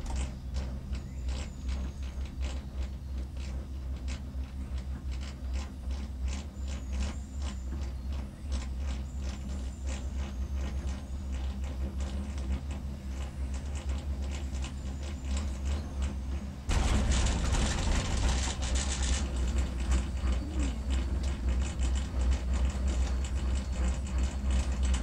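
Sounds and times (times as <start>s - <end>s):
cable car cabin rumble: 16.7s - 25.0s
faint squeak: 19.9s - 21.4s.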